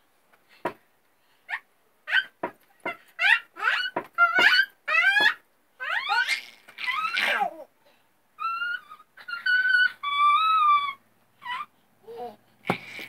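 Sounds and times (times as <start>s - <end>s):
small children squealing: 1.5s - 7.6s, 8.4s - 11.7s.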